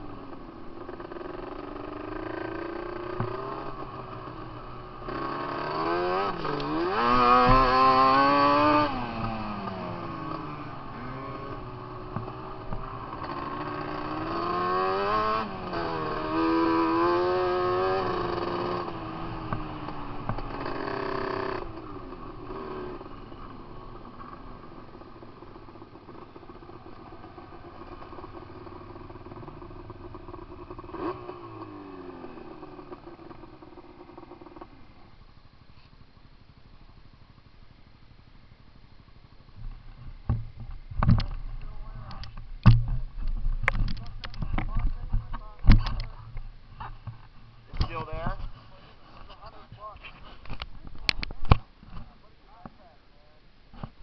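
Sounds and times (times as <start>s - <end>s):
quad engine revving: 0.8s - 23.1s, 26.1s - 34.7s.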